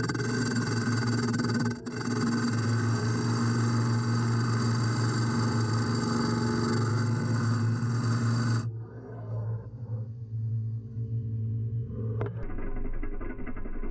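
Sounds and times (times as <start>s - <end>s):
lathe motor hum: 0.0s - 8.7s
tool scraping wood: 0.0s - 8.7s.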